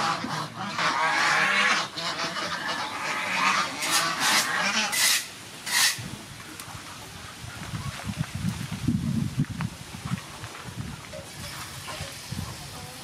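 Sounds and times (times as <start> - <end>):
geese honking: 0.0 - 6.0.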